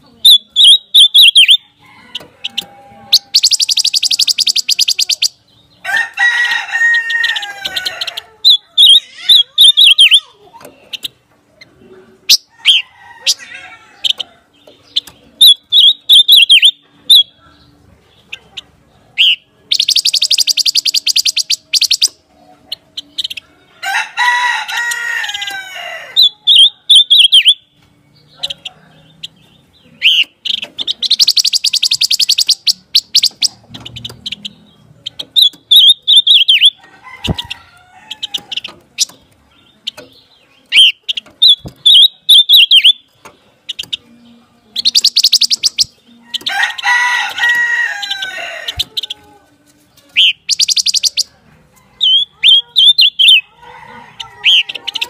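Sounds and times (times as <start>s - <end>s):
bird whistled notes and trills: 0.2s - 1.7s, 3.1s - 5.4s, 8.5s - 10.2s, 14.8s - 17.3s, 19.2s - 22.2s, 26.2s - 27.8s, 30.0s - 36.8s, 39.8s - 44.0s, 44.8s - 46.5s, 50.1s - 51.3s
harsh drawn-out bird call: 0.2s - 1.8s, 2.4s - 10.4s, 19.2s - 22.1s, 23.1s - 27.7s, 30.0s - 34.7s, 40.7s - 43.1s, 52.0s - 55.0s.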